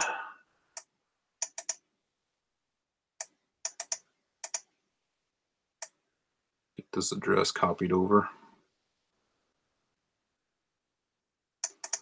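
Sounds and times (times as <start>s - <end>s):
mouse and keyboard clicks: 0.8s - 1.8s, 3.2s - 4.7s, 11.6s - 12.0s.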